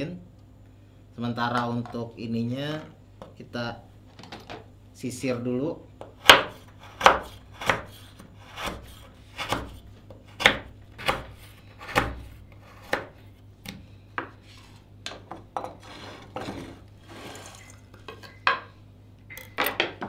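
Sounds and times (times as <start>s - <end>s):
knife chopping on wooden board: 6.0s - 13.2s
scraping off cutting board: 15.8s - 17.8s.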